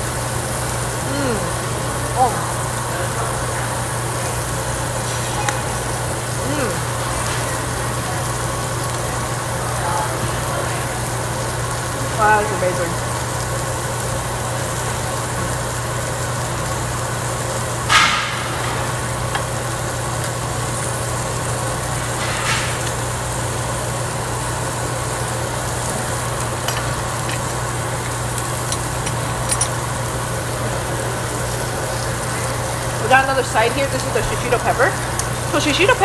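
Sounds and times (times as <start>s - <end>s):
exhaust hood humming: 0.0s - 36.0s
meat sizzling on a grill: 0.0s - 36.0s.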